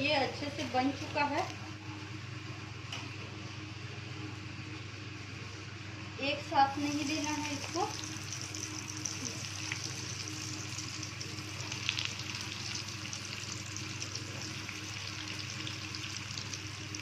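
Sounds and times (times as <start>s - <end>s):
low steady hum: 0.0s - 17.0s
food sizzling in hot oil: 6.6s - 17.0s.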